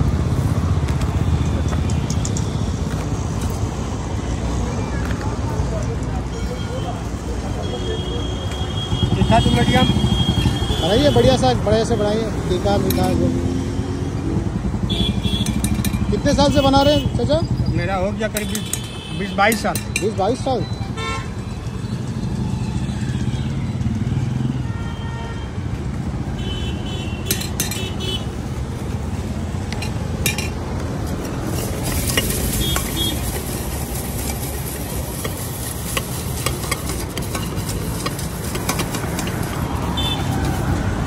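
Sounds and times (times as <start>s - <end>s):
road traffic rumble: 0.0s - 41.0s
metal spoon clinking in tin: 29.8s - 30.6s.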